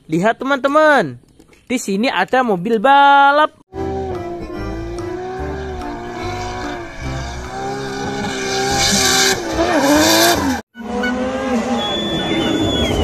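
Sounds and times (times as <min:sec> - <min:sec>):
car engine revving high: 0:03.8 - 0:12.8.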